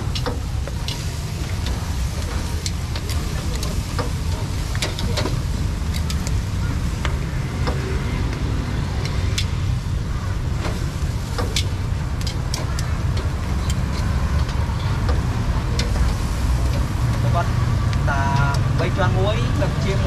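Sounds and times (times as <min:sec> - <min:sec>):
street traffic rumble: 0:00.0 - 0:20.0
metal tongs clicking on grill: 0:00.1 - 0:06.4, 0:10.6 - 0:17.3.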